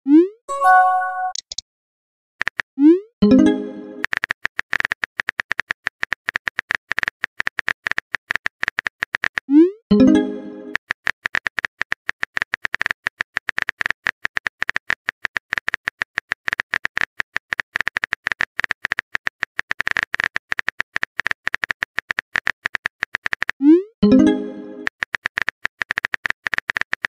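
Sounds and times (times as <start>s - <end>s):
phone keyboard typing clicks: 0.7s - 1.6s.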